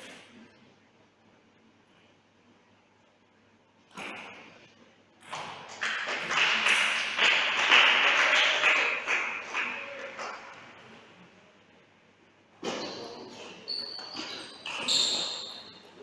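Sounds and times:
spectators clapping: 5.3 - 10.9.

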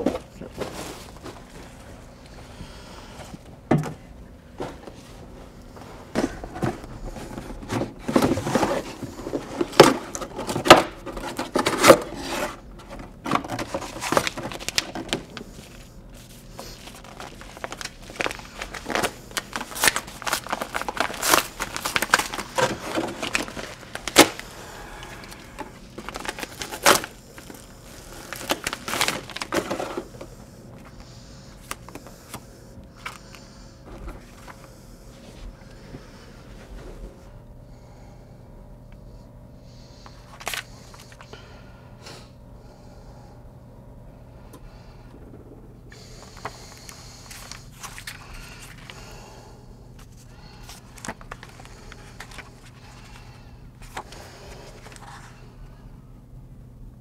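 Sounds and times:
cardboard and paper rustling: 0.0 - 2.0, 4.5 - 32.4, 33.0 - 37.2, 40.0 - 41.3, 46.0 - 49.1, 50.0 - 55.4.

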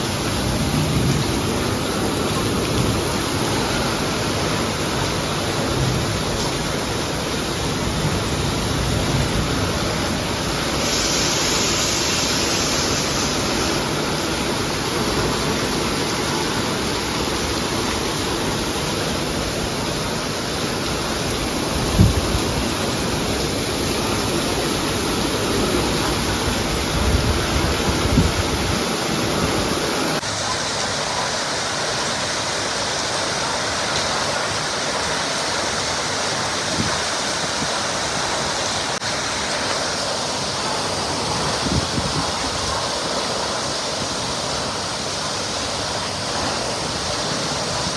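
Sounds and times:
runoff pouring off metal roof: 0.0 - 28.0
heavy rain falling: 0.0 - 47.9.

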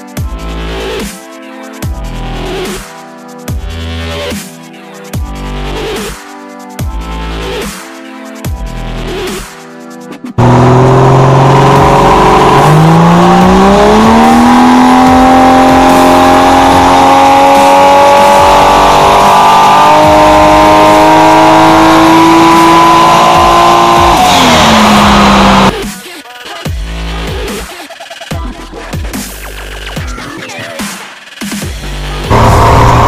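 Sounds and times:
engine revving at full throttle: 10.4 - 25.8, 32.3 - 33.0.

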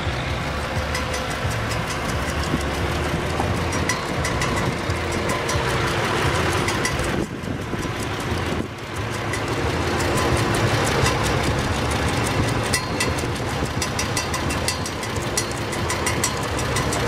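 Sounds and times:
rapid ticking clatter: 0.0 - 17.0
tractor engine running: 0.0 - 17.0.

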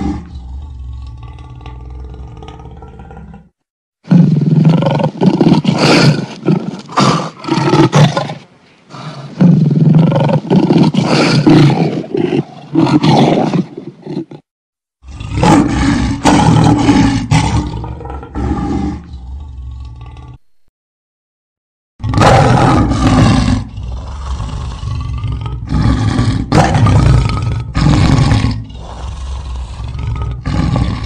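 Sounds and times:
tiger roaring: 0.0 - 8.4, 15.0 - 20.5, 22.0 - 31.0.

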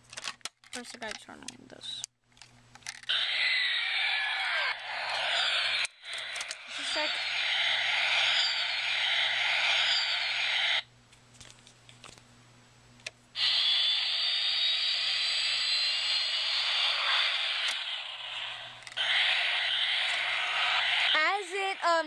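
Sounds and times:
toy jet engine sound effect: 3.1 - 10.8, 13.4 - 22.0.

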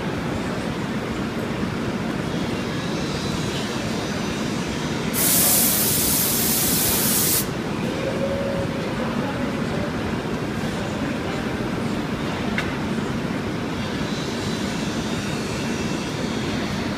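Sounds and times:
loud sharp hiss: 5.1 - 7.6.

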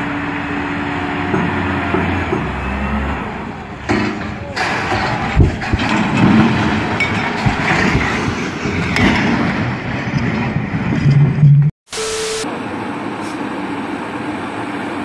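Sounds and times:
concrete slabs crashing: 3.9 - 10.4.

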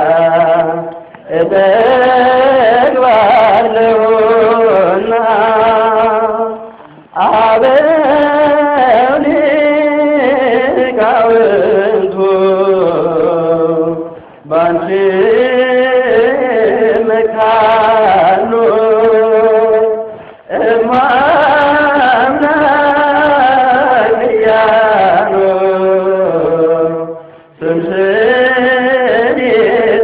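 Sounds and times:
person singing a hymn: 0.0 - 30.0.

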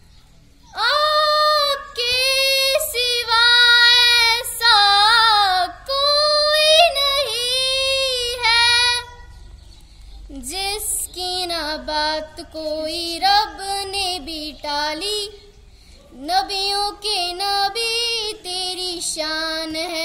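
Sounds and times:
girl singing unaccompanied: 0.7 - 9.4, 10.2 - 20.0.

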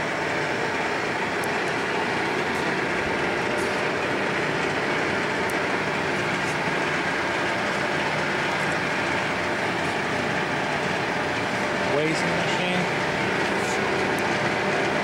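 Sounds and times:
lathe whirring: 0.0 - 15.0.

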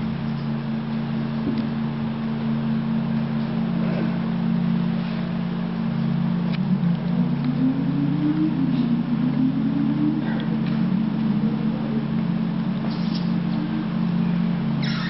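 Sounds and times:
low droning tones: 0.0 - 15.0.

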